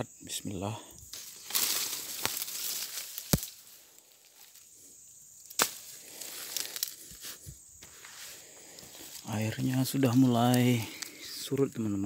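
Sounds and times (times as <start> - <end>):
stems snapping: 0.9 - 4.7, 5.4 - 7.4, 8.7 - 11.8
undergrowth cracking and rustling: 0.9 - 11.8.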